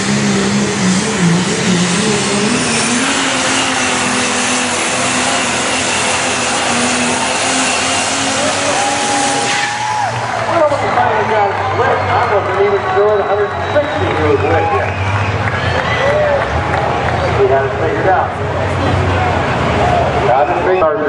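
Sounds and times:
diesel pickup engine at full load: 0:00.0 - 0:21.0
high whistle over engine: 0:07.1 - 0:10.2, 0:12.2 - 0:16.4, 0:19.9 - 0:21.0.

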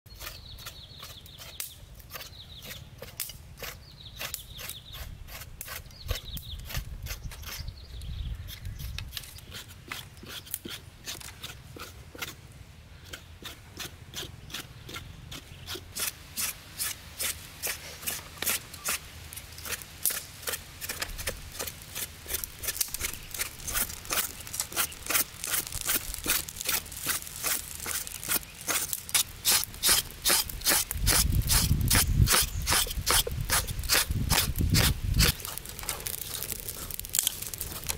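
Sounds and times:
knife scraping on wooden block: 0:00.1 - 0:07.6, 0:08.8 - 0:12.4, 0:19.6 - 0:37.9.

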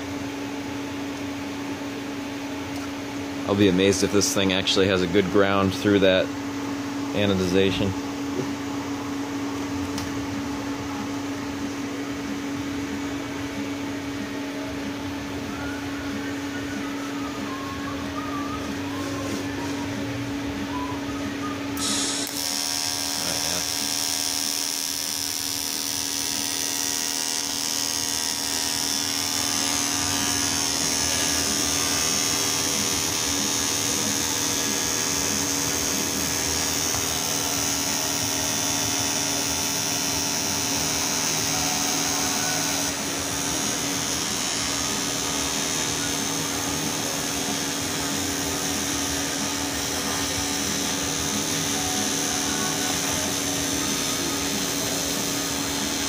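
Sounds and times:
welding arc buzzing: 0:21.7 - 0:56.0
welding arc striking: 0:21.8 - 0:56.0.

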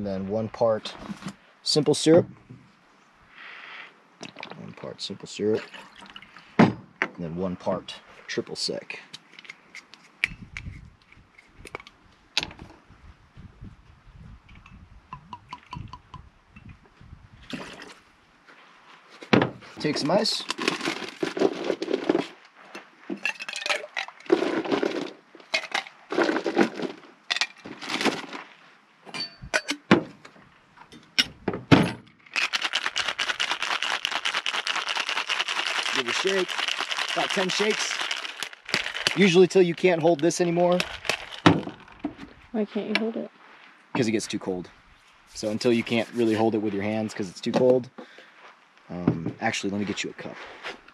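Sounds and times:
ice rattling in shaker: 0:23.2 - 0:28.4, 0:32.3 - 0:41.9.

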